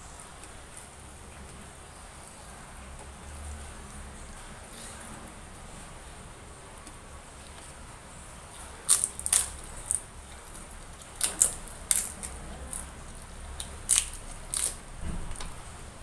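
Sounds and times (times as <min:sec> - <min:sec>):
crunching fried snack: 0:08.5 - 0:15.5.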